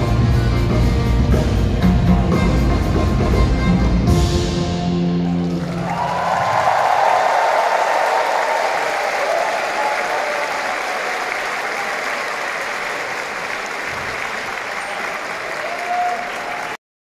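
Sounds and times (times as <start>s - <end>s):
large audience applauding: 5.2s - 16.8s.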